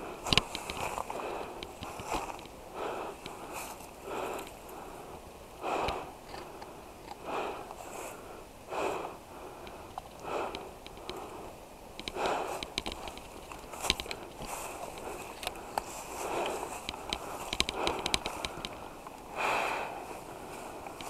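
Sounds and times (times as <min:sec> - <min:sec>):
person breathing heavily: 0:00.0 - 0:21.0
twigs and brush clicking: 0:00.2 - 0:04.9, 0:09.6 - 0:19.3, 0:20.1 - 0:21.0.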